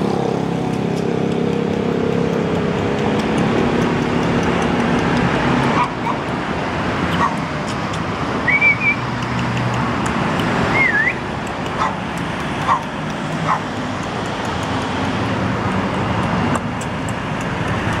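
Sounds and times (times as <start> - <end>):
street traffic: 0.0 - 18.0
mouth clicking sounds: 0.5 - 18.0
person whistling: 8.4 - 9.1, 10.7 - 11.2.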